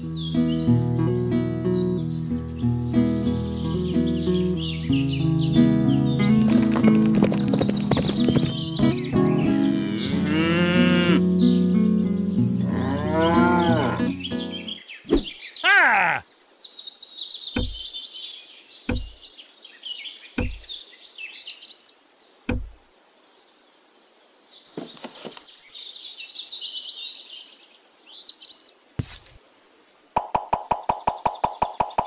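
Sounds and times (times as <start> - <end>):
birds chirping and singing: 0.0 - 0.8, 1.4 - 23.6
fast run of clicks: 6.4 - 9.0
single knocks: 17.6 - 17.9, 18.9 - 19.2, 20.4 - 20.7, 22.5 - 22.8.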